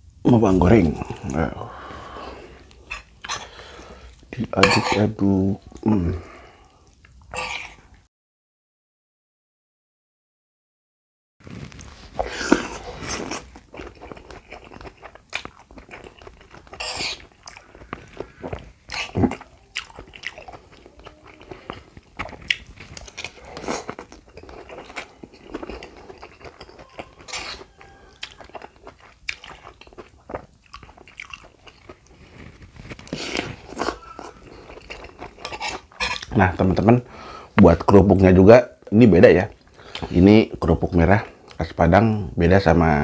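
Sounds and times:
person chewing food: 0.5s - 7.9s, 11.5s - 37.7s, 39.5s - 41.6s.

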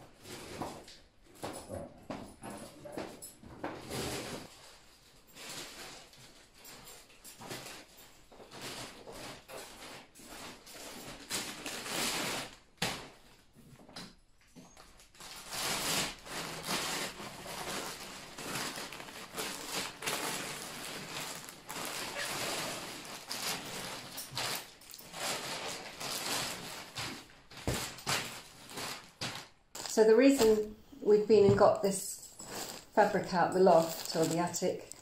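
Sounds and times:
plastic bags rustling and crinkling: 0.0s - 13.9s, 14.6s - 35.0s.

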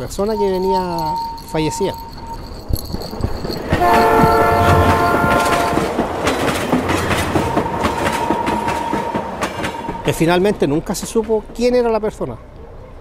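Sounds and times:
train wheels clattering on rails: 0.2s - 11.9s
train whistle: 3.7s - 6.0s.

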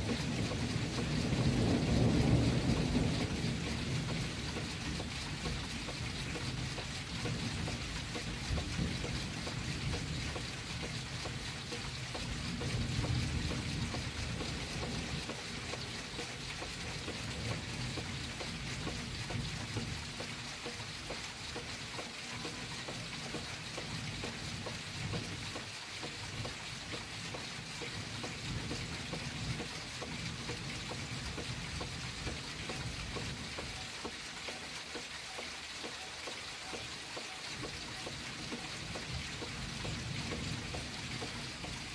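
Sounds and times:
thunder rumble: 0.0s - 7.6s
heavy rain falling: 0.0s - 41.9s.

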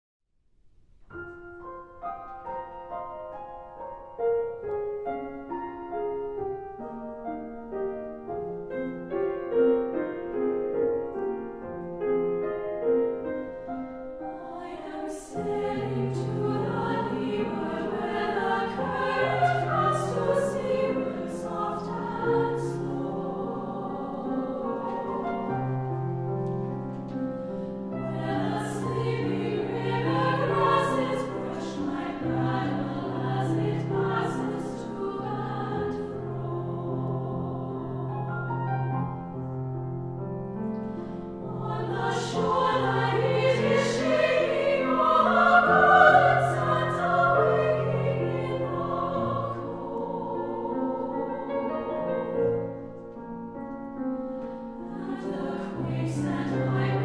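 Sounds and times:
choir singing: 14.2s - 39.5s, 41.0s - 53.1s, 54.5s - 57.0s.

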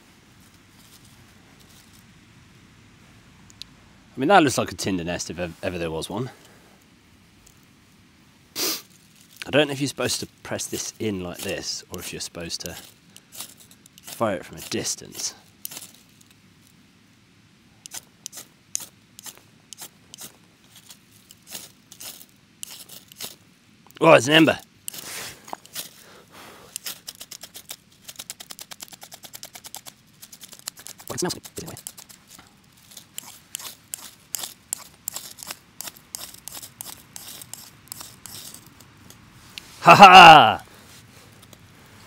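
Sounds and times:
dry leaves and bark crinkling: 0.0s - 2.3s, 8.8s - 16.9s, 17.7s - 42.0s
striker scraping ferro rod: 10.7s - 16.0s, 17.8s - 23.4s, 24.4s - 26.0s, 26.7s - 39.7s.

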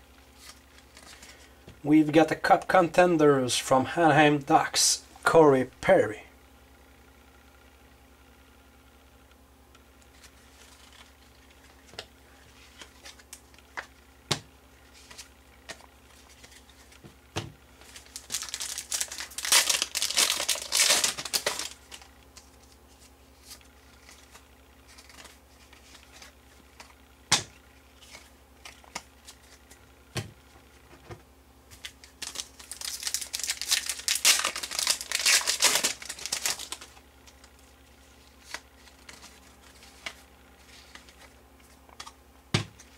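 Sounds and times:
cards being flipped and sorted: 0.3s - 1.8s, 10.0s - 42.9s
foil wrapper tearing and crinkling: 17.8s - 22.1s, 31.8s - 37.5s.

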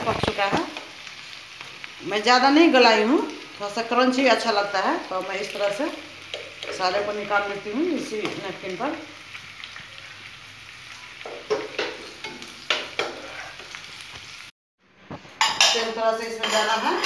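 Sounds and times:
vegetables sizzling in oil: 0.0s - 14.5s
metal spoon knocking on pan: 11.2s - 13.2s
steel bowls and utensils clattering: 15.4s - 17.0s.

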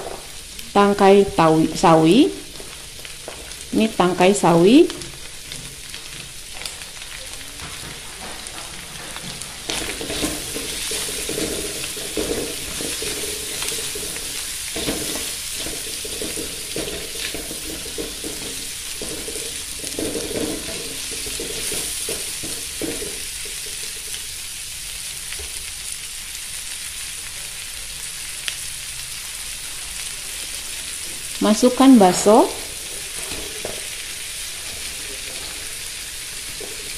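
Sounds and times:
vegetables sizzling in a wok: 0.0s - 36.9s
spatula scraping a pan: 7.6s - 24.3s, 32.6s - 36.9s.

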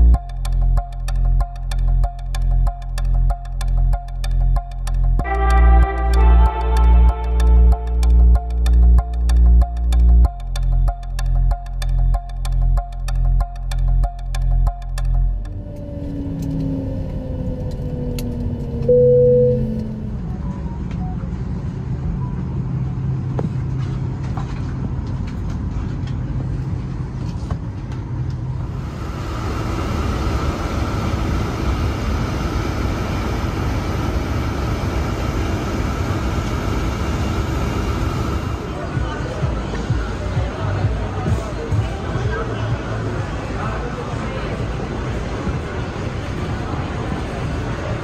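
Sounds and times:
low rumble: 0.0s - 36.4s
jet engines winding down: 15.4s - 23.3s, 28.5s - 40.9s
short clear tone: 18.9s - 20.0s.

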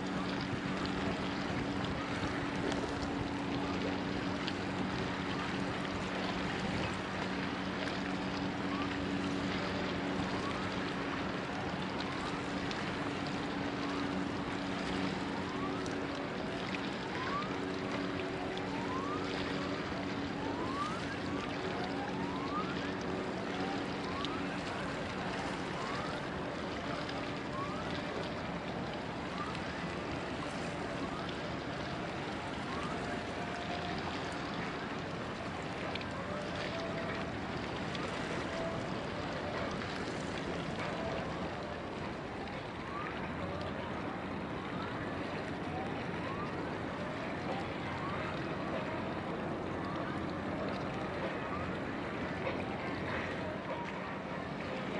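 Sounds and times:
low steady hum: 0.0s - 54.9s.

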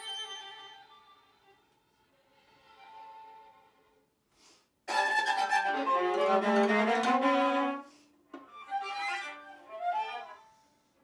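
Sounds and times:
violin and viola playing: 4.9s - 10.7s.

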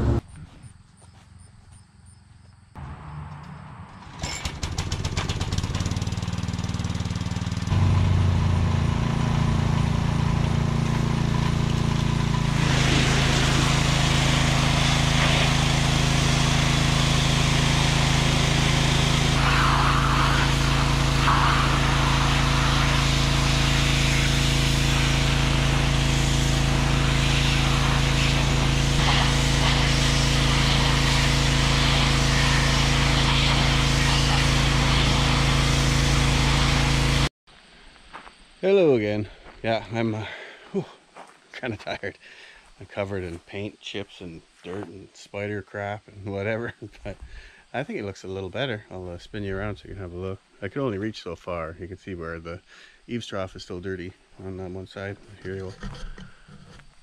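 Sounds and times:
pressure washer motor hum: 2.8s - 37.3s
water jet spraying siding: 4.7s - 37.3s.

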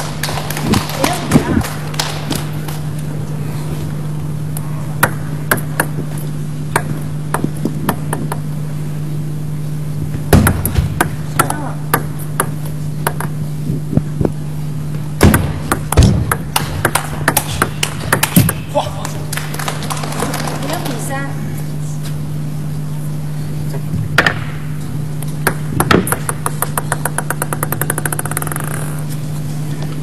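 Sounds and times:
steady low hum: 0.0s - 30.0s
table tennis ball clicks: 15.3s - 18.6s, 25.2s - 29.0s.

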